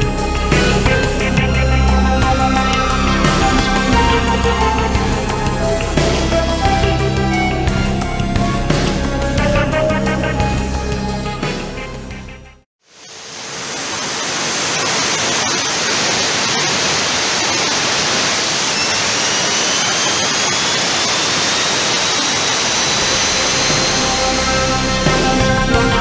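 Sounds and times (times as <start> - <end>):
thin rising whistle: 18.6 - 25.3.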